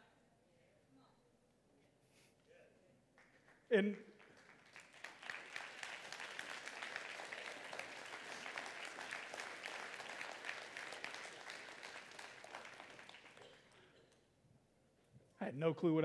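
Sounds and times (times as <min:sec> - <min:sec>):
crowd applauding: 0:04.2 - 0:14.0.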